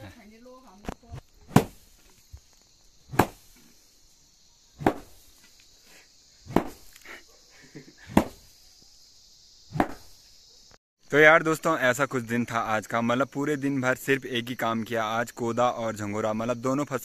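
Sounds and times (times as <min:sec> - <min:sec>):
steady high hiss: 0:00.0 - 0:17.0
stick beating grain: 0:01.5 - 0:02.1, 0:03.1 - 0:03.8, 0:04.8 - 0:05.6, 0:06.5 - 0:07.0.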